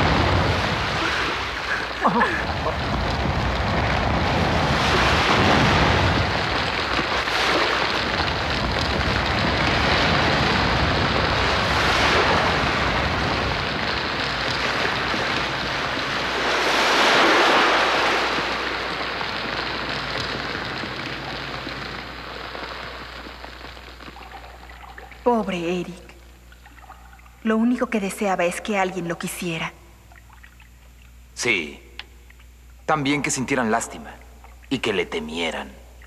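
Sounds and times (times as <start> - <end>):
rushing wind and water: 0.0 - 23.4.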